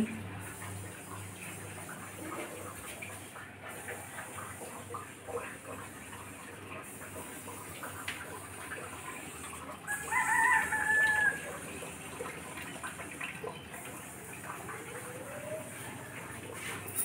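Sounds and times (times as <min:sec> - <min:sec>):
rooster crowing: 0:09.9 - 0:11.6.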